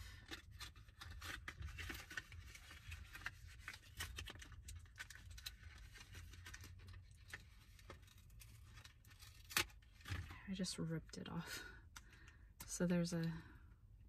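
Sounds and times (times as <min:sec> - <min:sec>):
plastic and cardboard crinkling: 0:00.0 - 0:10.6.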